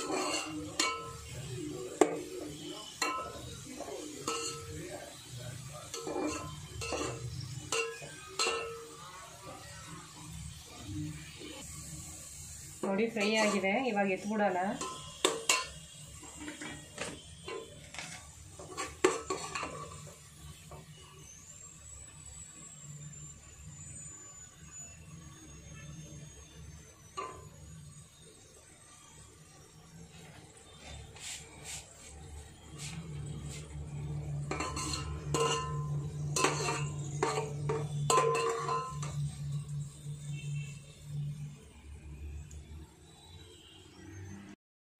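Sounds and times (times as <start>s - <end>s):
metal skimmer clinking on pot: 0.0s - 1.3s, 3.0s - 3.5s, 4.2s - 4.9s, 5.9s - 9.0s, 12.8s - 13.7s, 14.7s - 16.6s, 34.4s - 39.2s
ringing metallic clanks: 4.1s - 4.9s, 34.4s - 39.4s.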